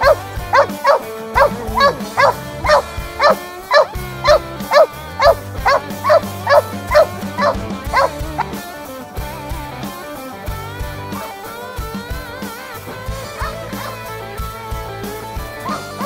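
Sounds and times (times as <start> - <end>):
dog barking: 0.0 - 8.6, 11.1 - 11.4, 13.3 - 14.2, 15.6 - 16.0.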